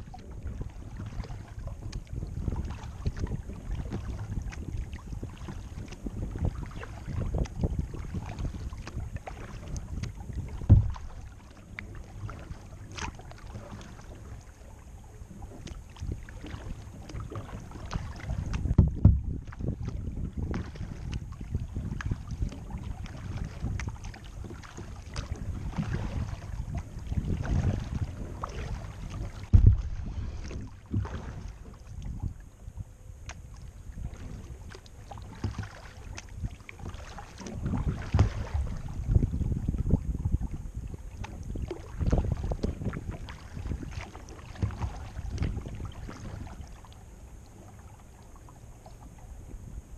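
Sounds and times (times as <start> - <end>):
paddle strokes splashing and dripping: 0.0 - 49.8
low rumble: 6.2 - 24.4, 25.4 - 34.7
dull thump: 9.9 - 11.3, 18.4 - 19.6, 29.3 - 31.8, 37.4 - 38.7.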